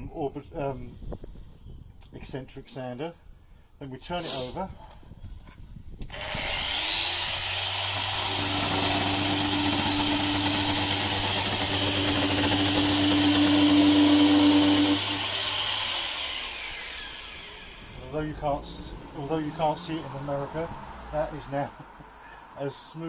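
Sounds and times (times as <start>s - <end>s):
orbital sander sanding wood: 6.1s - 18.6s.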